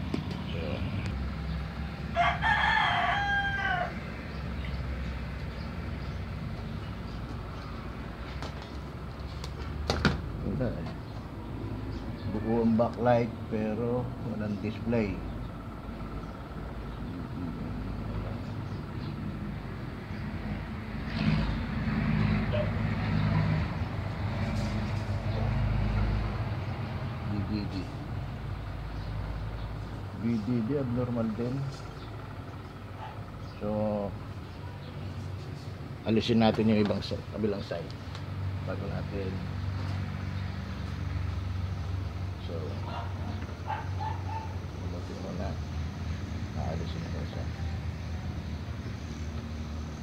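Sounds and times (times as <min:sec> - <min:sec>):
motor engine humming: 0:00.0 - 0:50.0
rooster crowing: 0:01.8 - 0:04.4.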